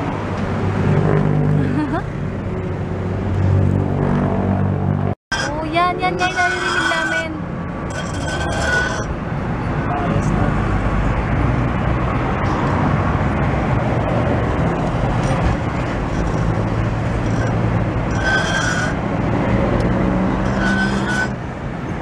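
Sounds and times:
road traffic: 0:00.0 - 0:22.0
high-pitched squeaks: 0:05.3 - 0:09.1, 0:15.2 - 0:19.0, 0:20.4 - 0:21.4.

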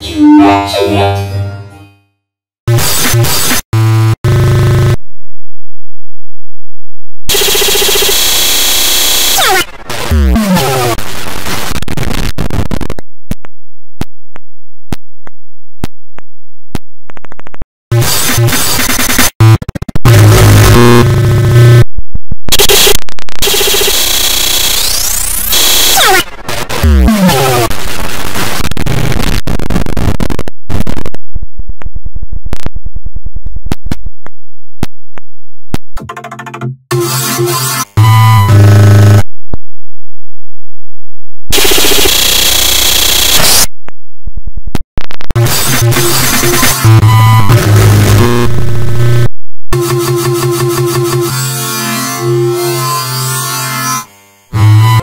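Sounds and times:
distorted noise burst: 0:02.7 - 0:05.4, 0:07.3 - 0:13.0, 0:17.9 - 0:21.9, 0:22.5 - 0:31.3, 0:41.5 - 0:43.7, 0:45.0 - 0:50.0
fast buzzing stutter: 0:02.7 - 0:05.4, 0:07.3 - 0:12.9, 0:17.9 - 0:21.9, 0:22.5 - 0:31.2, 0:41.5 - 0:43.7, 0:45.0 - 0:55.0.

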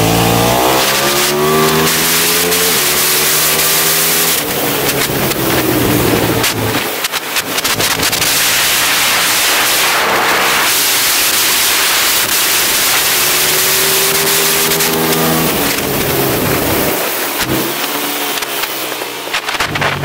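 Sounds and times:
motorcycle engine running hard: 0:00.0 - 0:20.0
heavy wind rush: 0:04.0 - 0:17.6.

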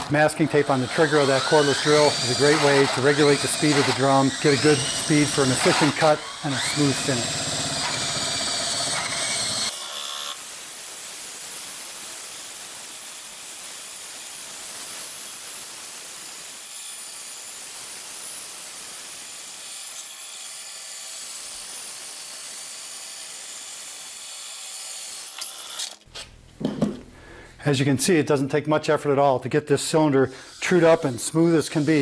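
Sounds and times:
drill motor whine: 0:00.0 - 0:26.0
sanding belt hissing on wood: 0:00.7 - 0:07.2, 0:30.2 - 0:32.0.

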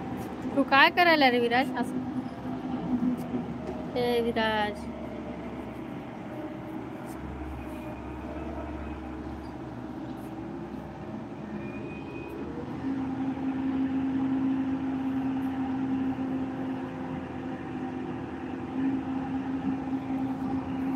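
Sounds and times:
vehicle engine droning: 0:00.0 - 0:20.9.

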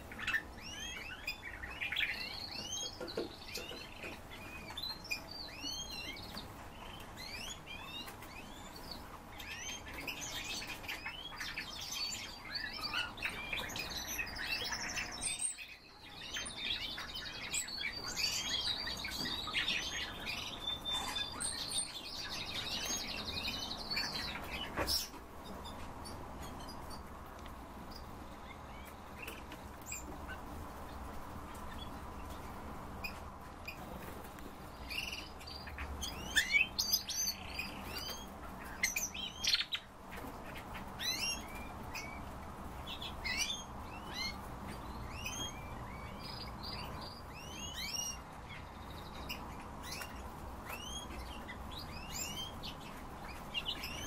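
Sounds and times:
caged songbirds chirping: 0:00.0 - 0:54.0.

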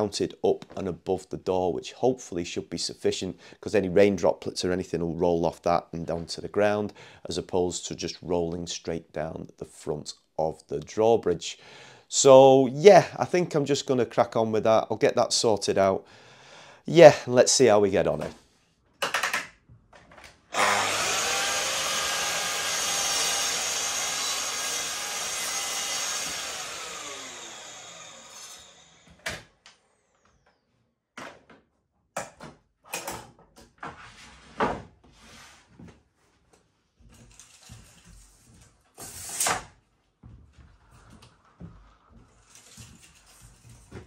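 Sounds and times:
mitre saw cutting wood: 0:20.5 - 0:29.3.

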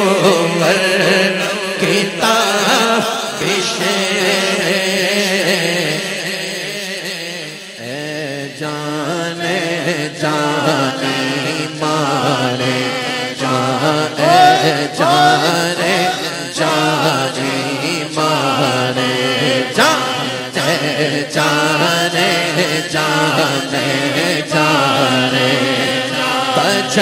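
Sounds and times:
man chanting devotional song: 0:00.0 - 0:27.0.

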